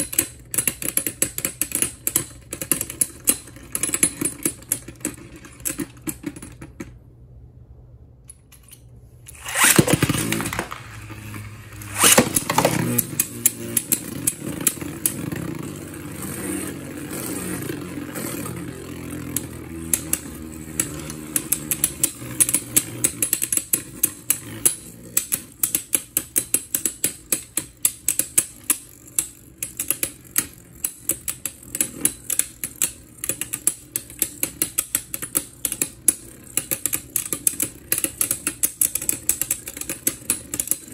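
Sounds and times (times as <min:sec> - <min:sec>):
spinning tops clacking together: 0:08.4 - 0:40.9
spinning tops whirring: 0:09.3 - 0:40.9.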